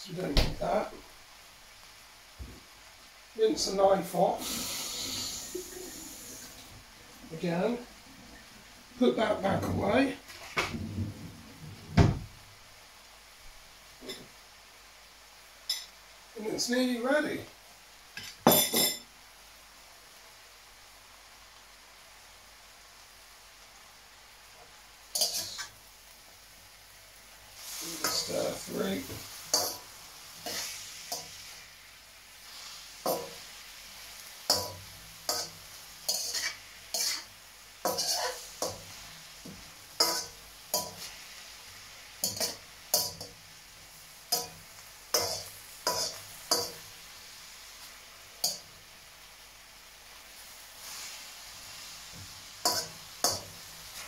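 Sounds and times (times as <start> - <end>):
food sizzling in pan: 0.0 - 54.0
metal spatula scraping wok: 25.2 - 25.7, 27.6 - 31.6, 34.5 - 39.0, 40.0 - 41.2, 44.3 - 46.8, 52.6 - 54.0.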